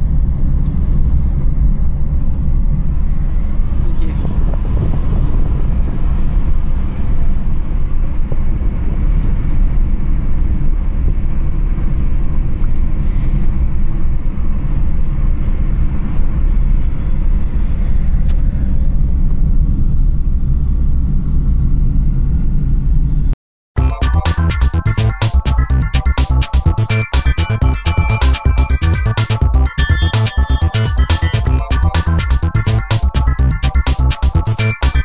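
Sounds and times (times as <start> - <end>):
car road and engine rumble: 0.0 - 23.3.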